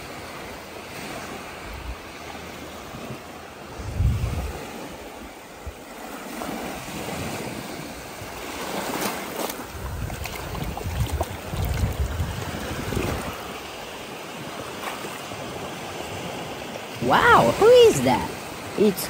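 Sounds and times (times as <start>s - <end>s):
ocean surf on shore: 0.0s - 19.0s
water sloshing and splashing: 0.3s - 19.0s
wind buffeting microphone: 2.8s - 13.9s.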